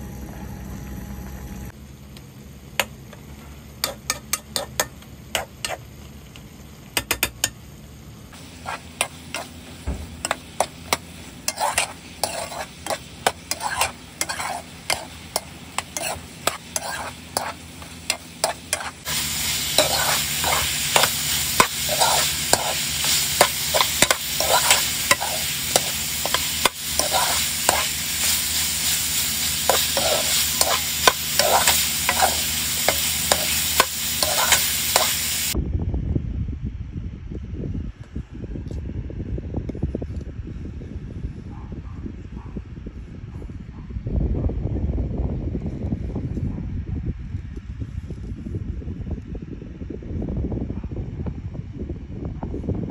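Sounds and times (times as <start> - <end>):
spatula scraping a pan: 3.8 - 5.8, 8.4 - 35.6
food sizzling in a pan: 8.4 - 35.6.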